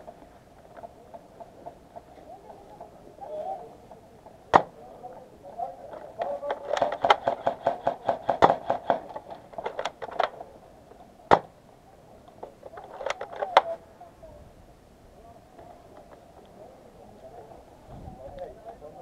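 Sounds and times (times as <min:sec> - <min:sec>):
airsoft gun firing: 0:06.6 - 0:10.3, 0:11.3 - 0:11.5.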